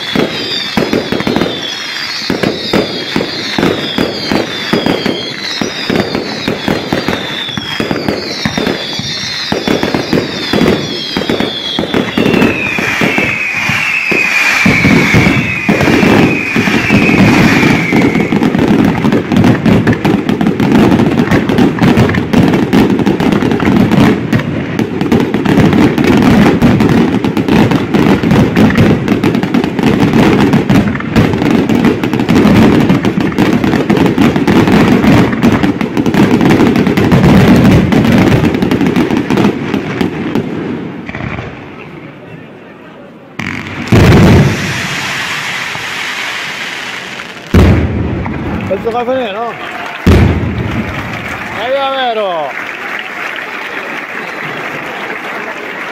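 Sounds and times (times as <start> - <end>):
fireworks whistles falling in pitch: 0.0 - 40.1, 43.4 - 52.4
fireworks bangs and crackle: 0.0 - 42.6, 43.2 - 55.9.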